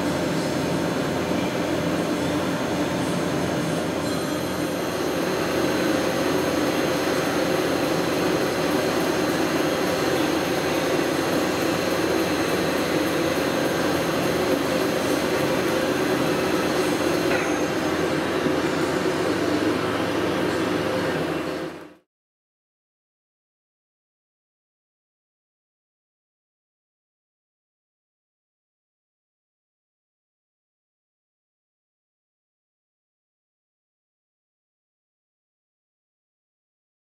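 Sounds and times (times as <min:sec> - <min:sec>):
lathe mechanical hum: 0:00.0 - 0:22.0
faint high whine: 0:01.2 - 0:22.0.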